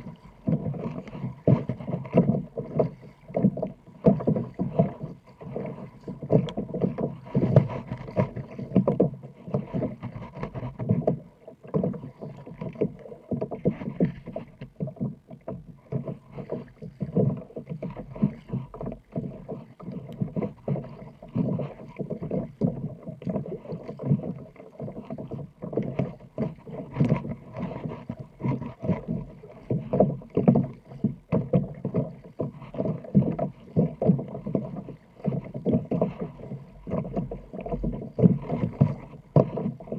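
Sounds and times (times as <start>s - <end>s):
paddle blades dipping in water: 0.0s - 39.9s
water slapping kayak hull: 0.0s - 39.9s.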